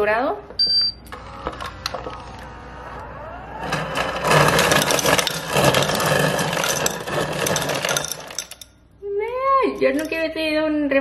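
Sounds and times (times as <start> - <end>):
ice crusher motor humming: 1.2 - 8.7
crushed ice rattling into glass: 4.2 - 8.7.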